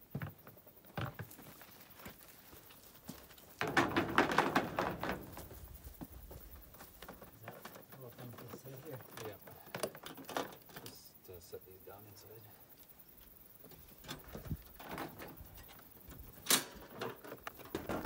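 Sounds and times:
plastic knocks: 3.6s - 5.5s
plastic mat clattering: 3.6s - 6.2s.

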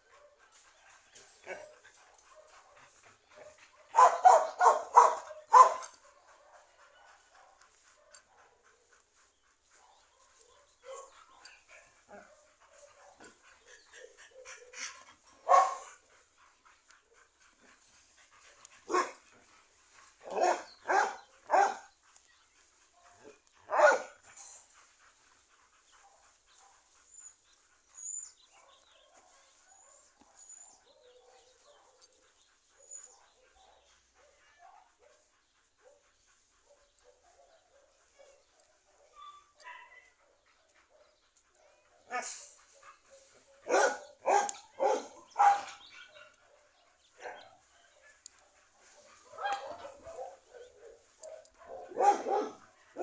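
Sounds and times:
dog barking: 3.4s - 9.0s, 9.8s - 11.5s, 15.4s - 15.9s, 18.9s - 19.2s, 20.2s - 21.9s, 23.1s - 24.2s, 28.5s - 32.2s, 33.4s - 36.0s, 36.6s - 42.4s, 43.1s - 53.0s.

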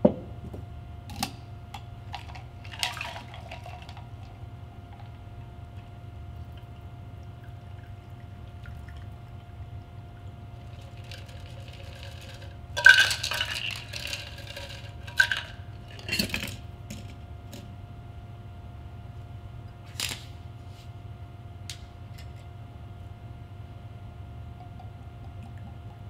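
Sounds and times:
faint steady hum: 0.0s - 26.0s
liquid trickling: 4.9s - 14.8s.

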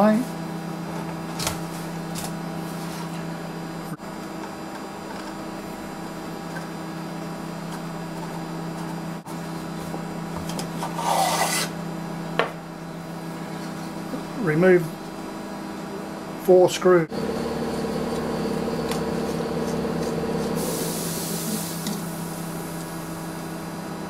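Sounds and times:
steady background hum: 0.0s - 24.0s
rasping scrape: 10.8s - 11.8s.

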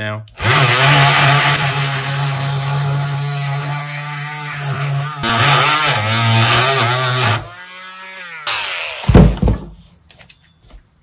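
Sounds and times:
oscillating multi-tool cutting metal: 0.4s - 9.2s.

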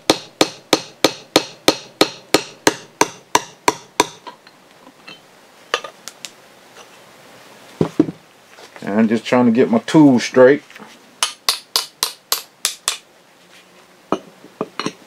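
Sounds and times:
hammer tapping metal tool: 0.0s - 5.2s, 11.2s - 13.0s, 14.1s - 15.0s.

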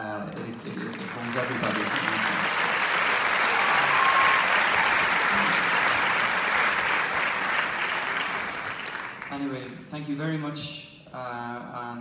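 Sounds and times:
audience applauding: 0.3s - 9.8s.

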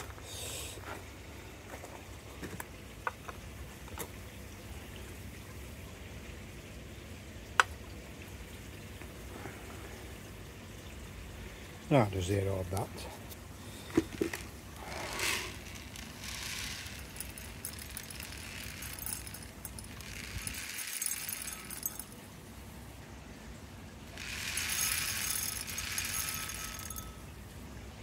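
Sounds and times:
pellets rattling into glass jug: 13.7s - 22.2s, 24.2s - 27.3s.

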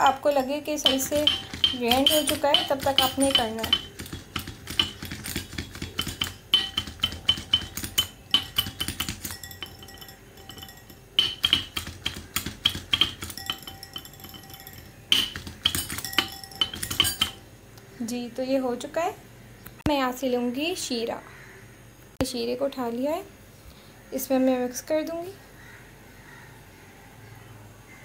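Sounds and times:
whisk clinking against glass bowl: 0.0s - 17.4s.

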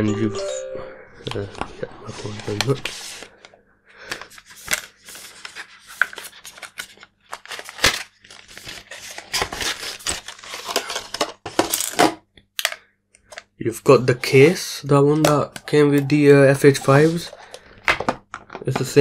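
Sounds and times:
cardboard packaging rustling: 4.2s - 11.7s.

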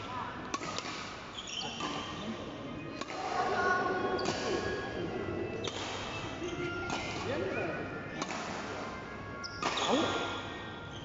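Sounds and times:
background din of hall: 0.0s - 11.0s
racket striking shuttlecock: 0.5s - 1.2s, 3.0s - 3.6s, 4.2s - 4.6s, 5.6s - 7.3s, 8.2s - 8.8s, 9.6s - 10.4s.

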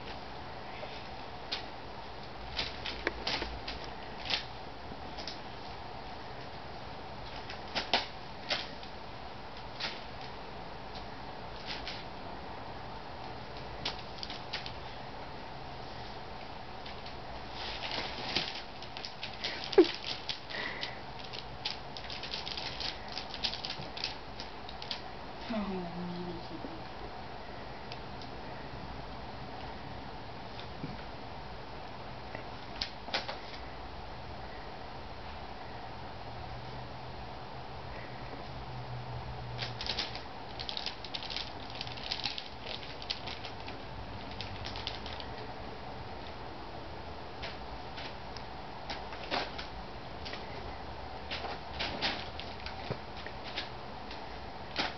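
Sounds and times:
foil wrapping paper crinkling: 13.8s - 14.9s, 16.8s - 25.0s, 39.6s - 45.4s, 51.3s - 54.9s.

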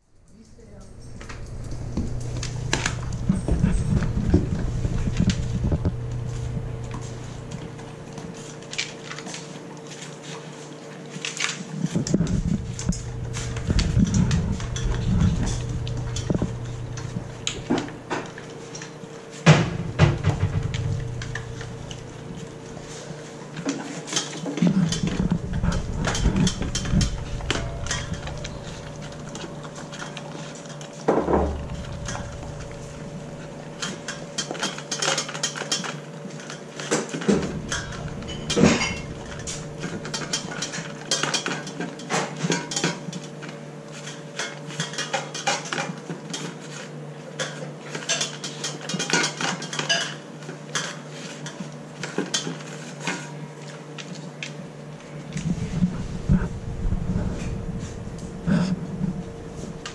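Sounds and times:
metal bowl clinks and scrapes: 0.3s - 7.5s, 23.8s - 30.9s, 31.5s - 43.2s.

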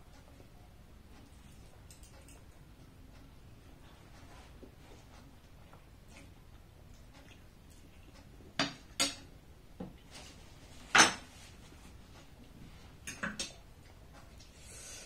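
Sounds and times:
cutlery clinking on ceramic plates: 10.9s - 11.3s, 13.0s - 13.6s.

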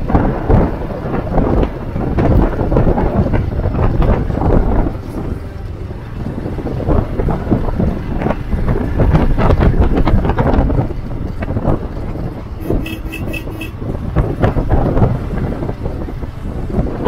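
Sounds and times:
motorcycle engine rumble: 0.0s - 17.0s
wind buffeting microphone: 0.0s - 17.0s
short beeps: 12.6s - 13.7s.

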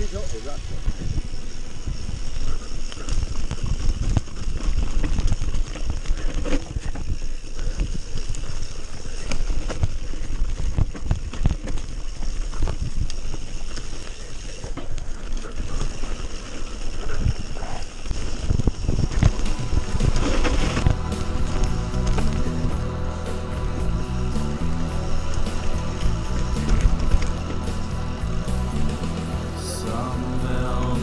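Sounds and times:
bike tyres on dirt trail: 0.0s - 31.0s
low rumble: 18.4s - 31.0s.

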